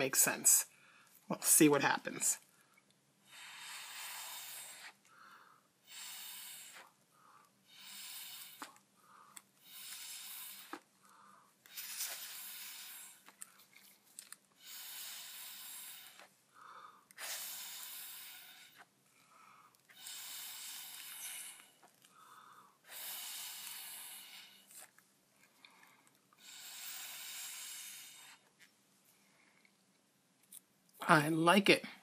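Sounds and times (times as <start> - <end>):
short in-breaths: 2.5 - 13.6, 14.6 - 24.9
breath blown through a straw: 3.2 - 13.7, 14.6 - 24.9, 26.4 - 28.5.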